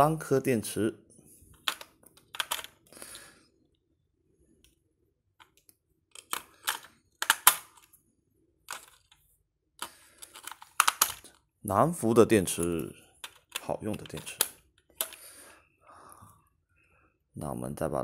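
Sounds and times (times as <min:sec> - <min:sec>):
batteries clicking into plastic toy: 0:01.6 - 0:02.9, 0:05.4 - 0:07.9, 0:09.8 - 0:11.4, 0:13.2 - 0:15.3.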